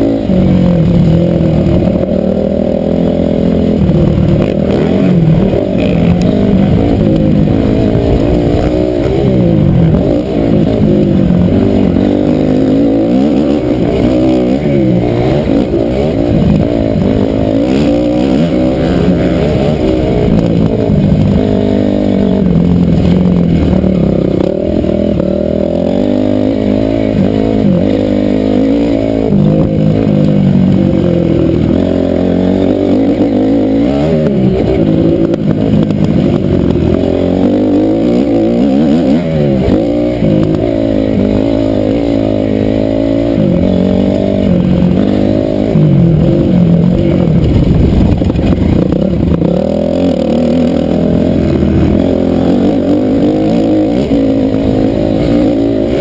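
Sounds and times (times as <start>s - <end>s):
motocross engine revving: 0.0s - 56.0s.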